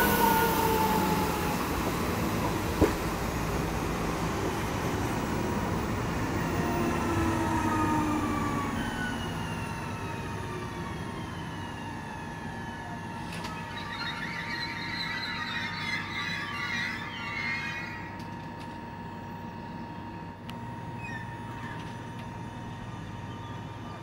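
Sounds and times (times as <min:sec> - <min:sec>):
train wheels rumbling on rail: 0:00.0 - 0:11.3
whining train motors: 0:00.0 - 0:24.0.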